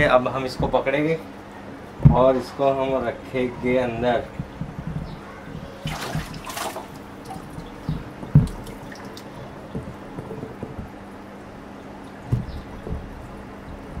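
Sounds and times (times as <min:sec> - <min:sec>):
steady low hum: 0:00.0 - 0:14.0
net splashing out of water: 0:05.8 - 0:07.5
water dripping from net: 0:05.9 - 0:09.3.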